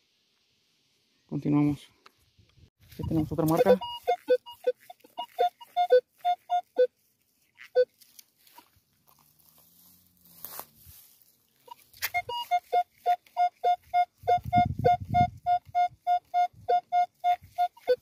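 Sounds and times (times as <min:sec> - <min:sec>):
metal detector beeping: 0:02.9 - 0:07.0, 0:07.6 - 0:08.0, 0:11.7 - 0:18.0.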